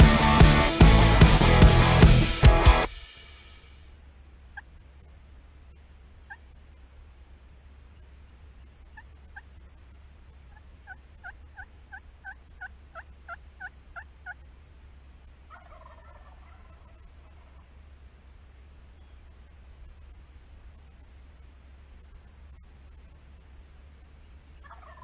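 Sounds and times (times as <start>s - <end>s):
wild turkey yelps: 6.2s - 6.5s, 10.5s - 14.4s, 15.5s - 17.7s, 24.6s - 25.0s
turkey gobble: 6.3s - 6.5s, 10.5s - 14.4s, 15.5s - 17.7s, 24.6s - 25.0s.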